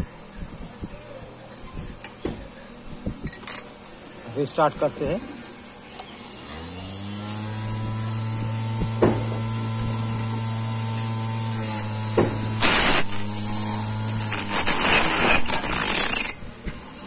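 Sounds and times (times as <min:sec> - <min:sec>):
electric motor humming: 0:06.1 - 0:17.0
cutter wheel rasping on metal: 0:07.2 - 0:17.0.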